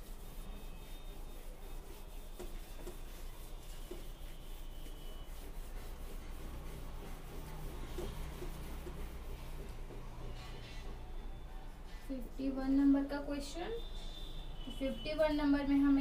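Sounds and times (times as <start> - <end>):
eraser rubbing on whiteboard: 0.0 - 12.3.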